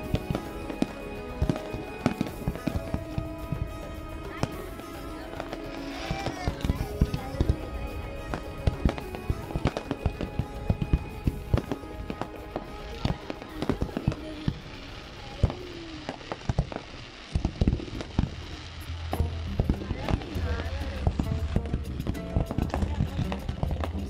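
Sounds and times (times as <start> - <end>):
fireworks bursting: 0.0 - 24.0.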